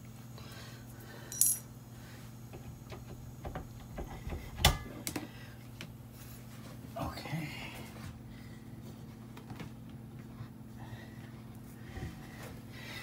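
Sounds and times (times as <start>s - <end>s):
steady low hum: 0.0s - 13.0s
metal tools clinking: 1.3s - 1.7s.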